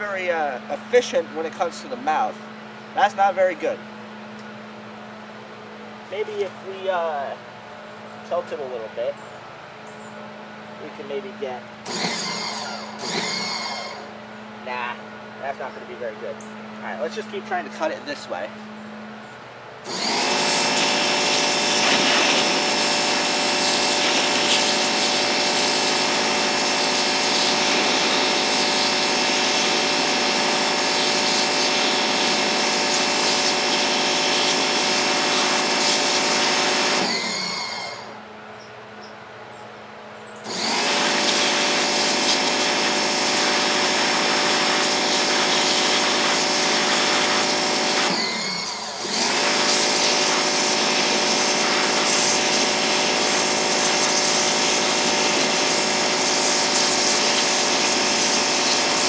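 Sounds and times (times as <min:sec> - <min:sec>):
pressure washer spraying: 0:11.9 - 0:14.1, 0:19.8 - 0:38.1, 0:40.5 - 0:59.0.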